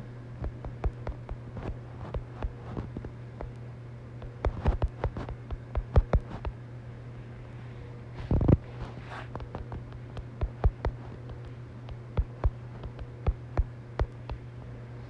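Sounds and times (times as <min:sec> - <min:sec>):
steady low hum: 0:00.0 - 0:15.0
taps on phone keyboard: 0:00.4 - 0:03.6, 0:04.2 - 0:06.6, 0:09.3 - 0:14.5.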